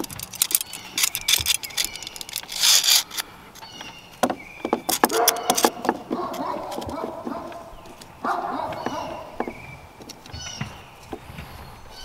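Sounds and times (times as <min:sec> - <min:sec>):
metal clicks and rattles: 0:00.0 - 0:08.1.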